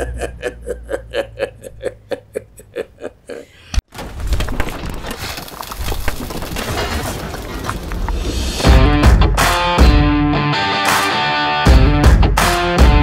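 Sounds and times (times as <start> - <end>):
man chuckling: 0.0 - 3.8
clattering crashing sound effect: 3.9 - 9.2.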